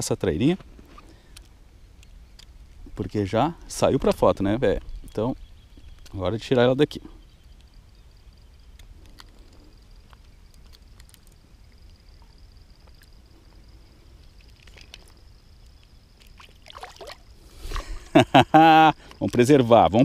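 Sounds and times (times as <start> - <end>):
water sloshing: 16.2 - 18.1.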